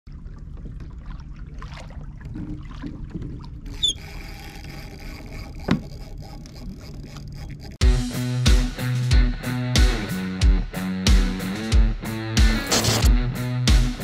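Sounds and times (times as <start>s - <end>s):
water sloshing around kayak: 0.1s - 7.8s.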